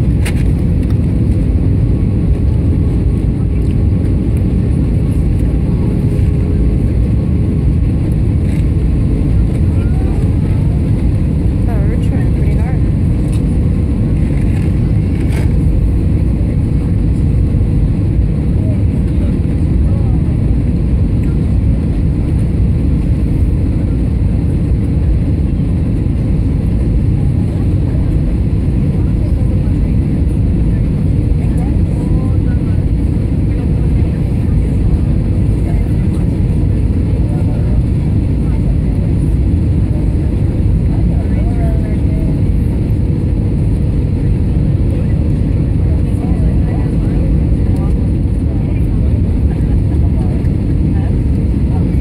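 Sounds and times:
jet airliner cabin roar: 0.0 - 52.0.

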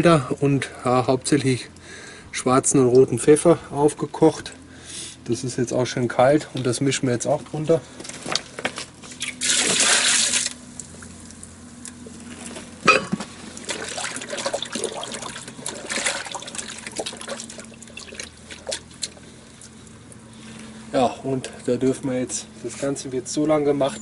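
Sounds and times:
hands sloshing in brine: 8.3 - 10.6, 13.2 - 20.3
liquid poured splashing: 9.1 - 11.5, 13.5 - 20.3.

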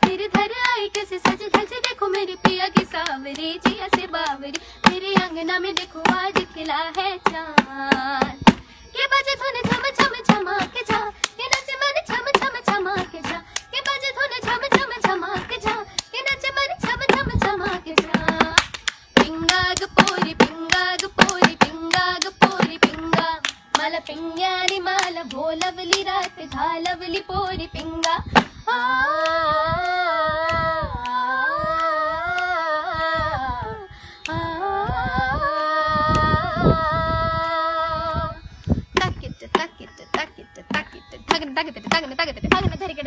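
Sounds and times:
girls singing together: 0.0 - 38.4, 39.0 - 43.0
hands clapping: 0.1 - 8.6, 9.7 - 16.1, 17.4 - 23.9, 24.6 - 27.0.

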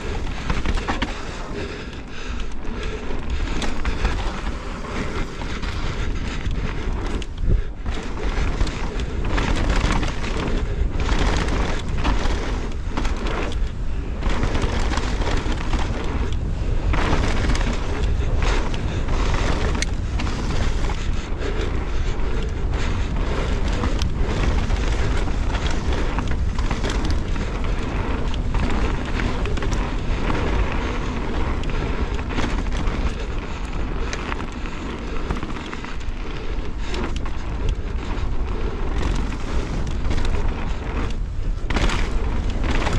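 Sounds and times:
bike rattling over bumps: 0.0 - 42.9
bike tyres rumbling on gravel: 0.0 - 42.9
wind buffeting microphone: 0.0 - 42.9.

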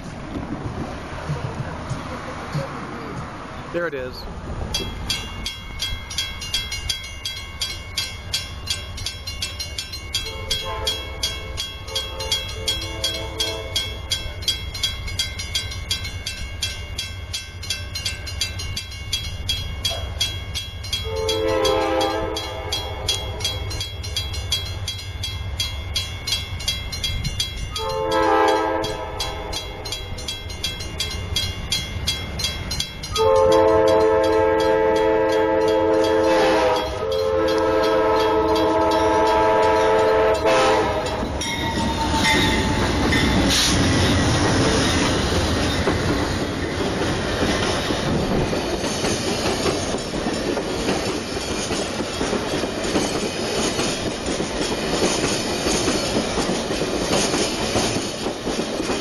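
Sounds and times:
low engine rumble: 0.0 - 6.2
crossing bell ringing: 1.4 - 59.0
locomotive multi-note horn: 10.2 - 11.2, 11.9 - 13.8, 21.0 - 23.6, 27.8 - 29.6, 33.2 - 42.7.

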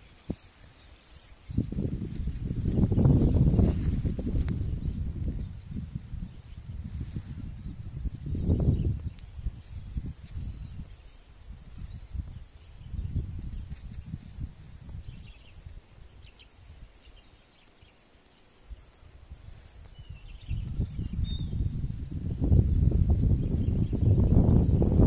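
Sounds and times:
wind buffeting microphone: 0.0 - 17.2, 18.8 - 25.0
faint high bird chirps: 7.5 - 14.2, 19.6 - 21.8.

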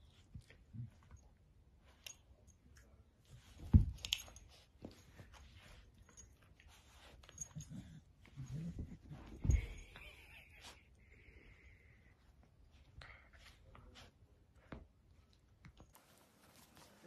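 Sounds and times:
dogs play-fighting: 3.4 - 10.0
scuffling on a dog bed: 15.9 - 17.0.

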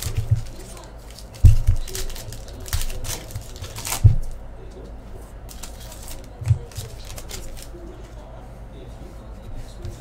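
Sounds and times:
cards rustling and clicking: 0.0 - 4.4, 5.5 - 7.8.

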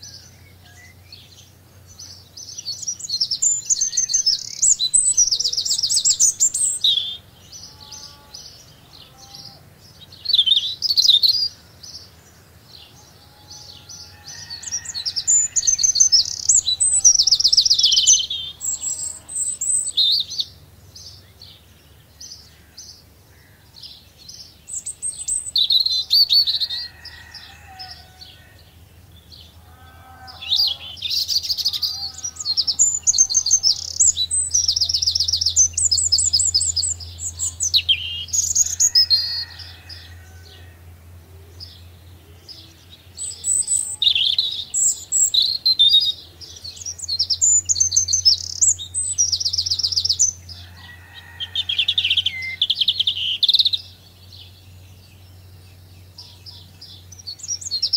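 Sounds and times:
songbirds singing: 0.0 - 57.9.

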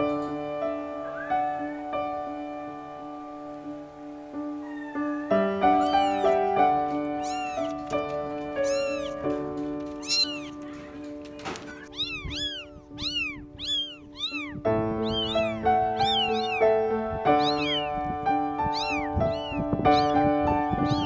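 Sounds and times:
background music of held notes: 0.0 - 21.0
kittens mewing: 5.7 - 21.0.

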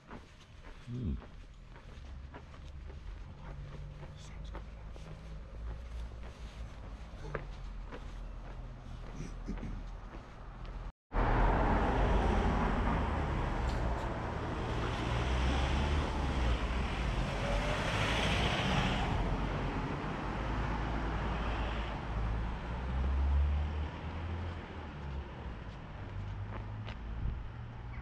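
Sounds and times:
road and traffic noise: 0.0 - 28.0
car driving past: 11.2 - 28.0.

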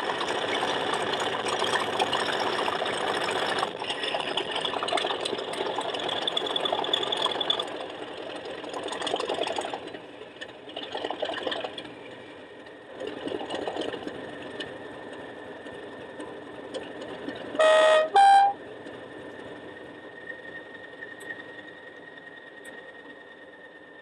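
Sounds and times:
diesel engine sound from small speaker: 0.0 - 20.6
two-tone horn: 17.6 - 18.6.

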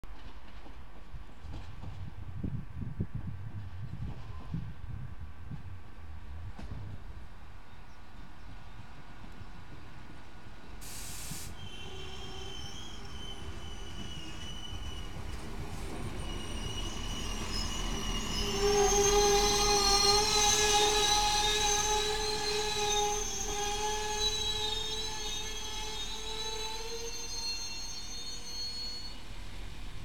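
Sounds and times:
railcar rolling: 0.0 - 30.0
brief hiss: 10.8 - 11.8
high steady squeal: 11.6 - 30.0.

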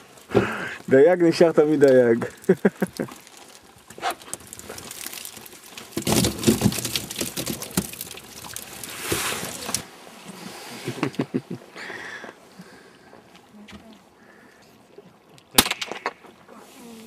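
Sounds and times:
fish and water slapping: 1.7 - 11.2.

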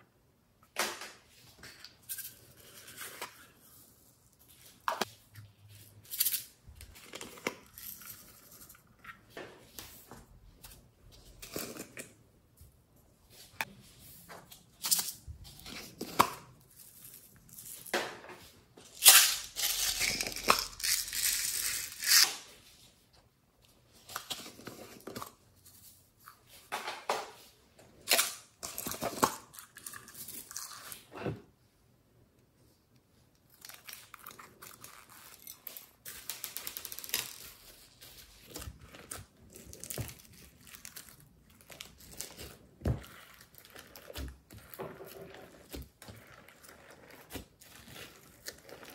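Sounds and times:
plastic crinkling and tearing: 33.5 - 48.9.

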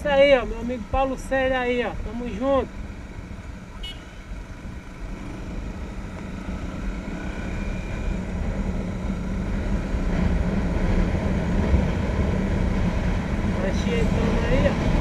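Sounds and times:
motorcycle engine: 0.0 - 15.0
wind rush on microphone: 7.1 - 15.0.

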